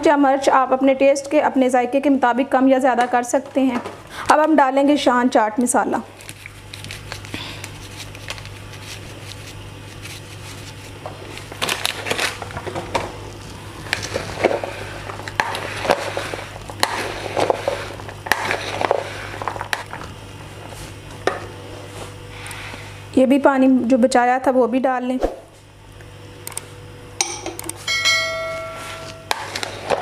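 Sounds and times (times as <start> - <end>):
spoon scraping in plastic bowl: 13.8 - 20.0.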